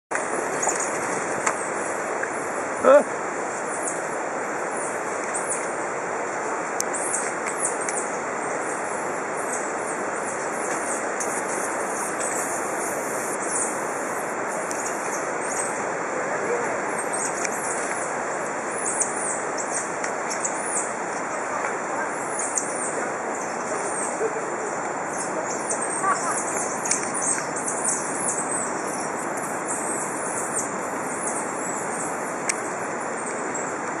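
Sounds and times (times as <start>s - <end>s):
steady hiss: 0.2s - 34.0s
monkeys peeping chirps: 8.6s - 15.7s, 22.0s - 32.1s
high-pitched sweeping chirps: 11.2s - 14.3s
thin high whine: 11.2s - 14.7s.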